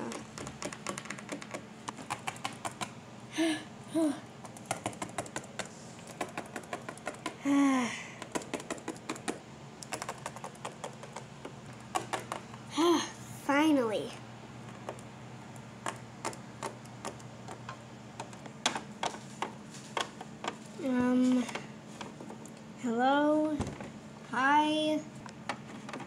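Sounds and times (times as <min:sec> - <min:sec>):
person humming: 0:03.3 - 0:04.3, 0:07.4 - 0:08.2
person's falling vocal sound: 0:07.4 - 0:08.1.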